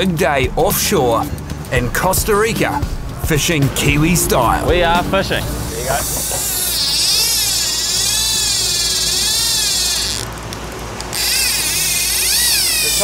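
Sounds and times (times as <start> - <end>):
fishing reel clicker buzzing: 6.4 - 10.4, 11.1 - 13.0.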